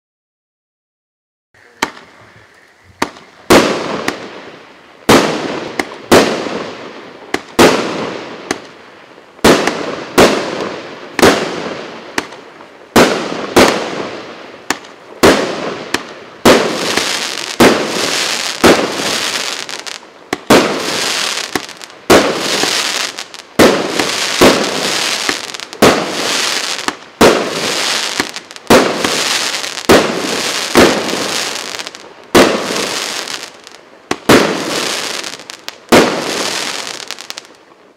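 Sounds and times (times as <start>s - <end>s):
steady hiss: 1.6s - 7.5s
firework reports: 1.6s - 37.7s.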